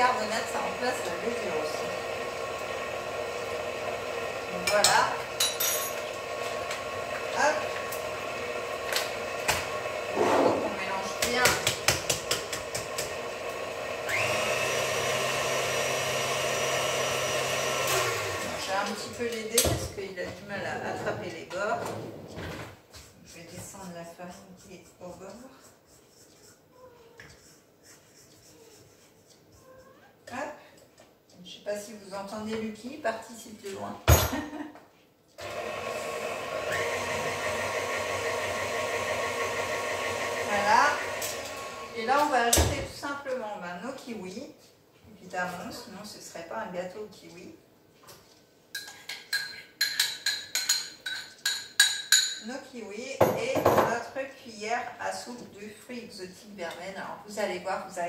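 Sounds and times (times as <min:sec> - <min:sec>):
stand mixer motor whine: 0:00.5 - 0:04.6, 0:06.0 - 0:10.2, 0:12.4 - 0:18.6, 0:35.4 - 0:42.0.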